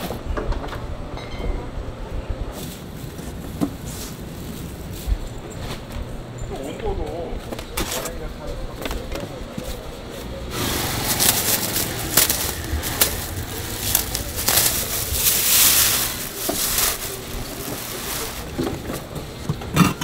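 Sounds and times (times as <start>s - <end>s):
plastic bags crinkling: 10.6s - 19.3s.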